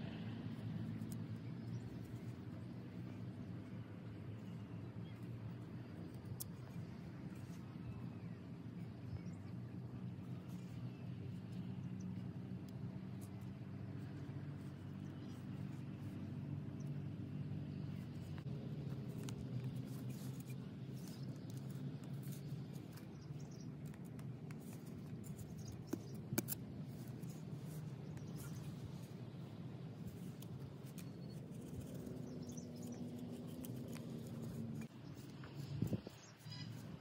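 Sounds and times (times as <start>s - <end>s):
low steady hum: 0.0s - 37.0s
knife scraping soil: 18.4s - 37.0s.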